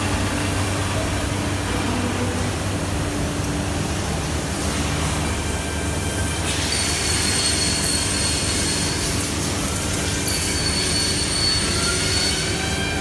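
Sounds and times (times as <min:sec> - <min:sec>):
machine running with spindle whine: 0:00.0 - 0:13.0.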